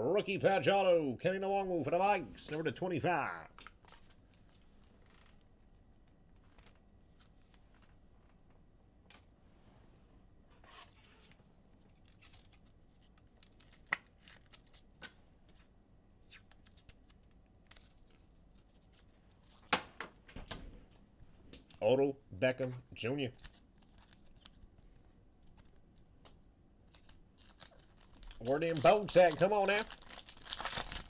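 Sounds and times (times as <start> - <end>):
trading cards and wrappers handled: 3.5 - 8.3, 10.6 - 19.8, 23.2 - 31.0.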